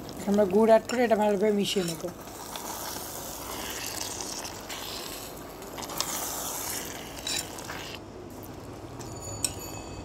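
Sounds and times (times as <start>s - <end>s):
metal spoon scraping a metal pan: 0.9s - 8.0s.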